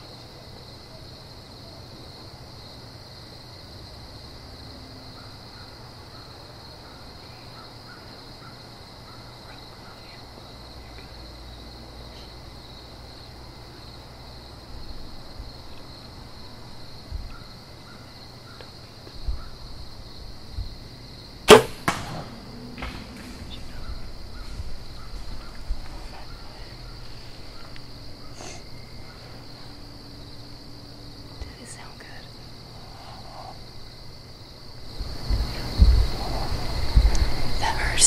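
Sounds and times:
insect chorus: 0:00.0 - 0:38.0
sharp loud crack: 0:21.5 - 0:23.9
soft rustles and thumps: 0:22.6 - 0:27.6.

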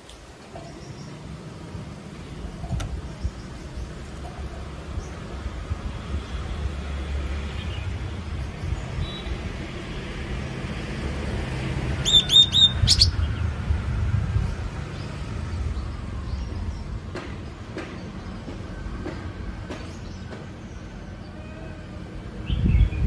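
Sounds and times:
bird calling: 0:12.0 - 0:13.3
steady low rumble: 0:12.6 - 0:17.2.

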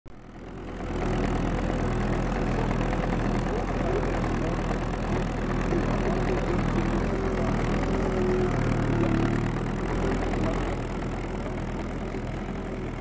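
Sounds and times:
engine running steadily: 0:00.1 - 0:13.0.

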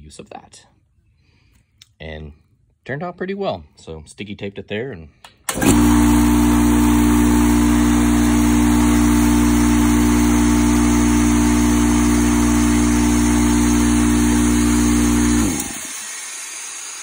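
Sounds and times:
air compressor running: 0:05.5 - 0:17.0.

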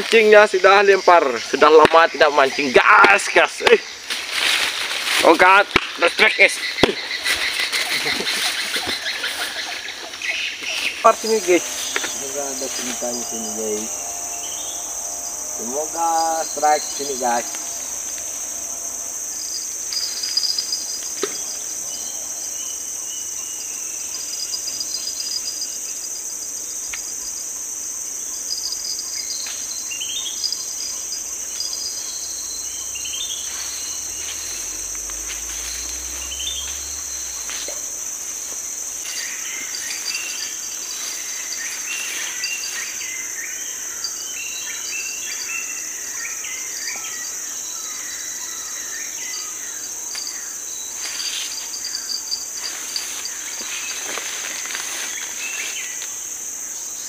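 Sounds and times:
high-pitched insect chorus: 0:00.0 - 0:57.0
bird chirps: 0:06.1 - 0:25.3, 0:28.5 - 0:56.0.

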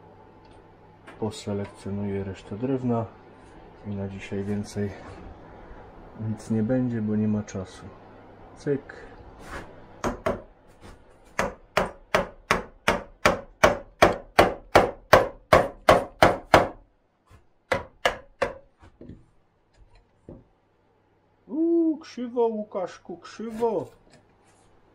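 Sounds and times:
mallet striking chisel: 0:11.4 - 0:16.8, 0:17.7 - 0:19.2.

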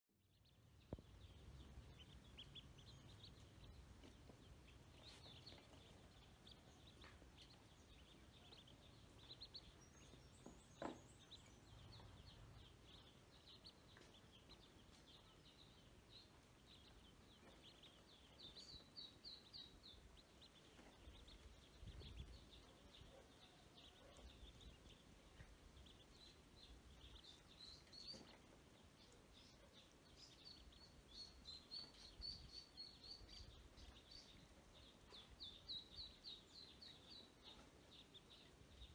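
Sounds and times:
faint low rumble: 0:00.2 - 0:23.3
ducklings peeping: 0:00.3 - 0:38.9.

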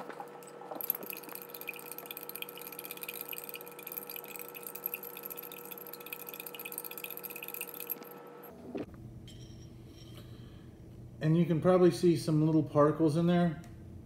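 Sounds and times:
liquid swishing: 0:00.8 - 0:08.2
spoon clinking against glass: 0:00.8 - 0:08.2.

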